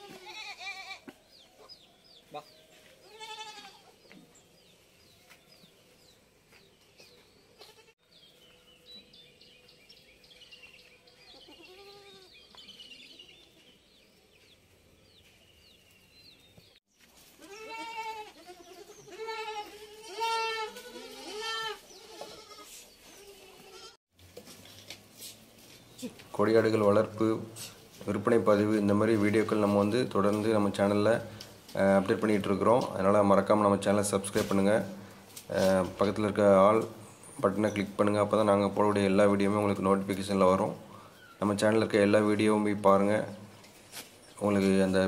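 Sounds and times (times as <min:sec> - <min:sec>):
goats bleating: 0:00.0 - 0:01.1, 0:03.0 - 0:03.9, 0:11.4 - 0:12.3, 0:17.4 - 0:24.0.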